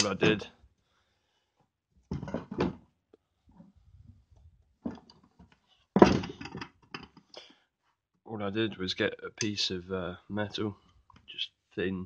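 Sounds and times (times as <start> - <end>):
knocks and rustles on workbench: 2.1 - 2.9, 4.8 - 7.2.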